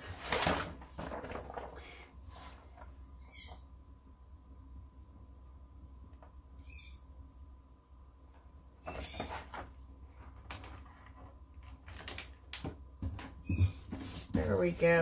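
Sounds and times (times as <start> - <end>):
plastic sheet crinkling and rubbing: 0.0 - 2.9, 9.2 - 12.7.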